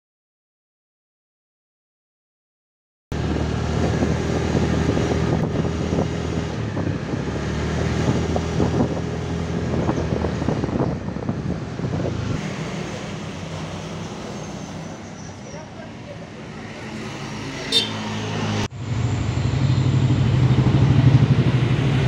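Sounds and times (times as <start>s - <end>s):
vehicle engine running: 3.1s - 22.0s
wind blowing over microphone: 3.2s - 14.0s, 18.3s - 22.0s.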